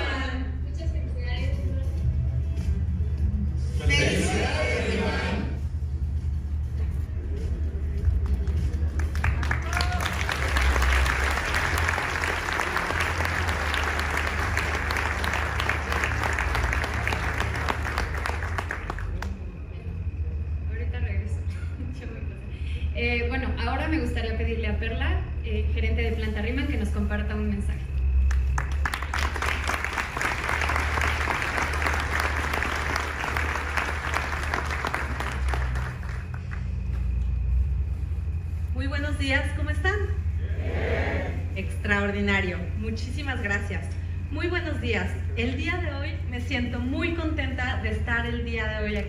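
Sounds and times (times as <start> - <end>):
steady low hum: 0.0 - 49.0
audience applauding: 8.2 - 19.4, 28.3 - 37.1.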